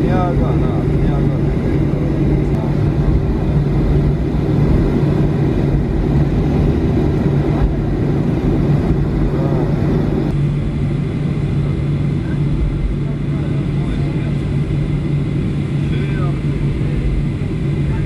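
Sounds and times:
airliner cabin engine drone: 0.0 - 18.0
low hum: 0.0 - 18.0.

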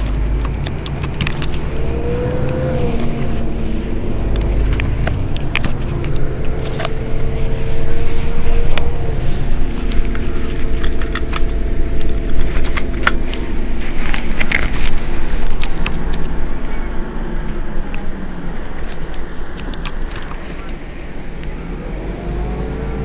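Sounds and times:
sharp clicks: 0.0 - 13.4
bus engine idling: 0.0 - 23.0.

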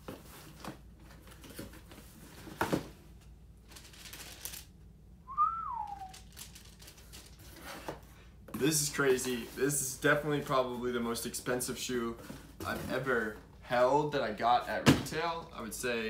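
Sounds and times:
short sliding whistle: 5.3 - 6.2.

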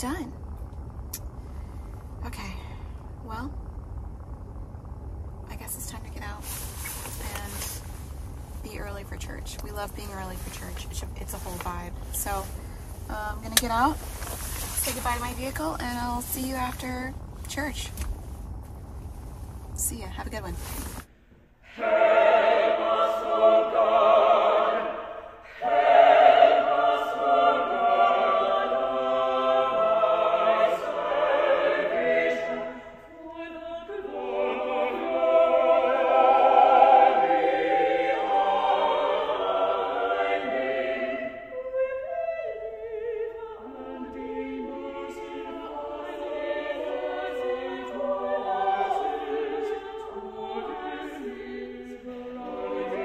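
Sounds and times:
mixed choir singing: 21.6 - 53.0.

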